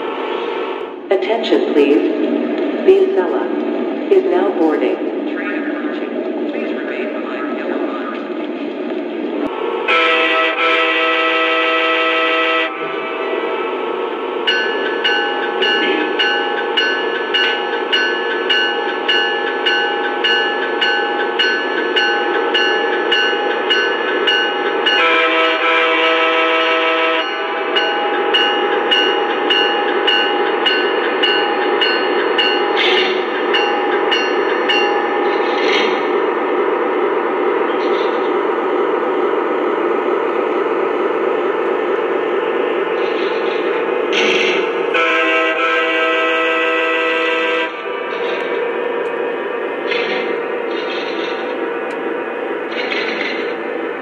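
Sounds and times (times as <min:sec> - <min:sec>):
model train bell ringing: 0:14.5 - 0:25.1, 0:27.2 - 0:35.4.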